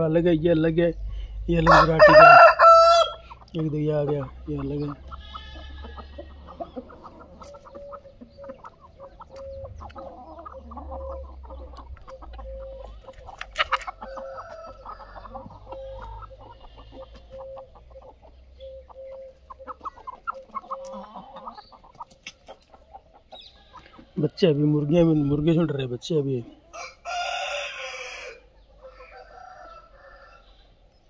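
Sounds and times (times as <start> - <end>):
chickens clucking: 0.0 - 31.0
sharp loud chicken call: 1.7 - 3.4.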